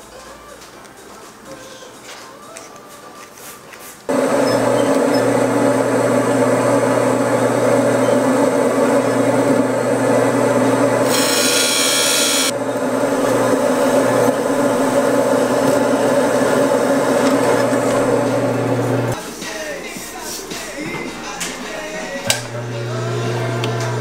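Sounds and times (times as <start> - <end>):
skiving machine motor hum: 4.1 - 19.2, 22.4 - 24.0.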